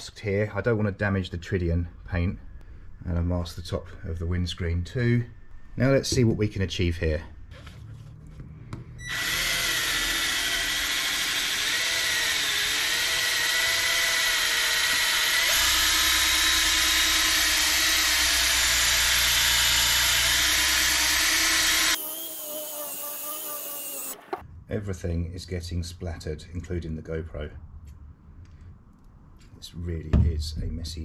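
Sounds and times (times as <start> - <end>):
rotary polisher whining: 9.0 - 24.4.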